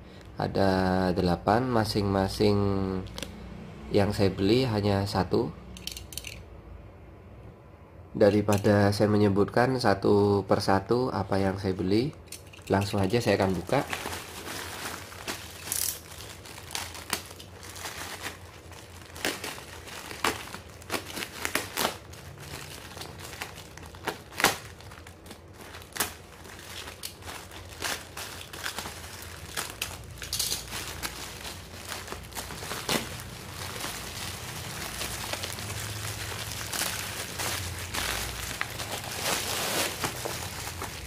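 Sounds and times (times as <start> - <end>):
plastic bag crinkling and tearing: 12.4 - 41.0.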